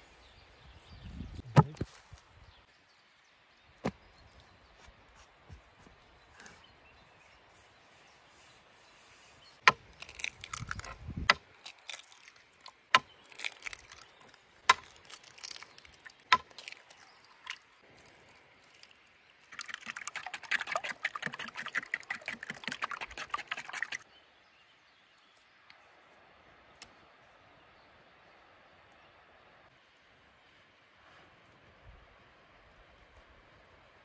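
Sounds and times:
wooden spoon beating eggs: 0:19.6 - 0:24.0.

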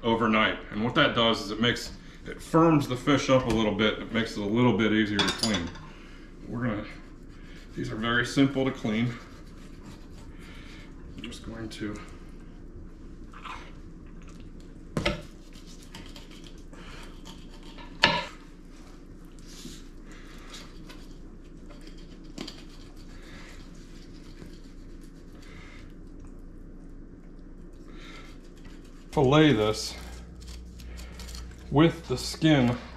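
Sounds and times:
low room hum: 0:00.0 - 0:32.9
knife scraping fish: 0:08.7 - 0:10.5, 0:15.2 - 0:18.1, 0:20.5 - 0:25.5, 0:28.2 - 0:32.8.

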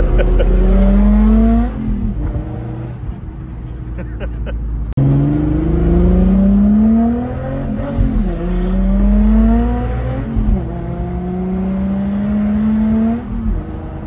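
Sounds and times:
car engine accelerating: 0:00.0 - 0:14.0
road noise: 0:00.0 - 0:14.0.

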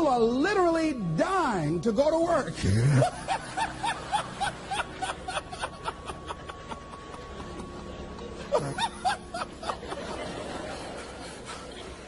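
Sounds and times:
audience laughter: 0:02.8 - 0:12.0.

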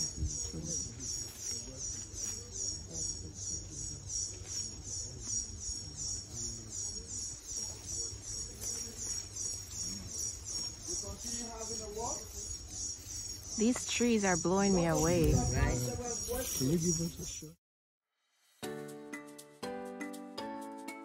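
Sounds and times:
insect chirping in high pulses: 0:05.0 - 0:17.4.

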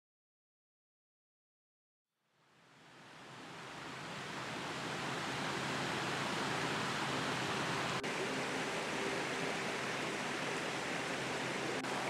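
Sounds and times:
stream rushing over rocks: 0:02.8 - 0:12.0.

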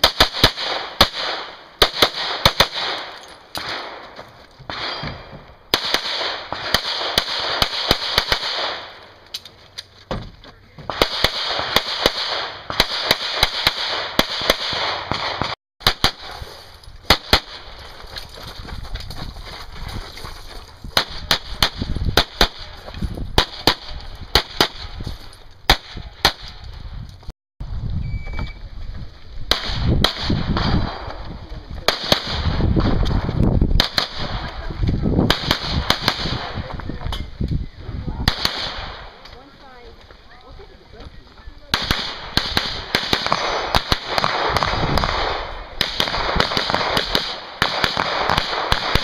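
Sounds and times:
pistol firing shots: 0:00.0 - 0:04.1, 0:04.7 - 0:09.0, 0:10.9 - 0:16.4, 0:17.1 - 0:17.7, 0:23.4 - 0:25.0, 0:25.7 - 0:26.6, 0:29.5 - 0:31.2, 0:31.8 - 0:33.2, 0:33.8 - 0:34.6, 0:35.2 - 0:36.7, 0:38.2 - 0:39.2, 0:41.7 - 0:49.0.

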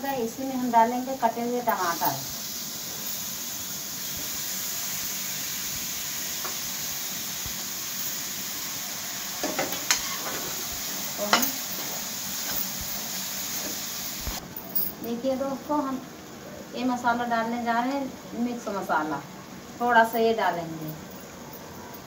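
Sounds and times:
food sizzling in hot oil: 0:00.0 - 0:14.4.

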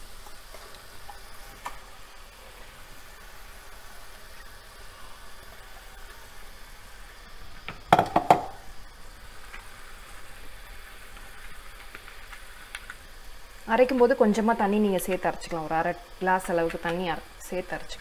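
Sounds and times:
food sizzling in a pot: 0:00.0 - 0:18.0
knocks: 0:07.9 - 0:08.6.

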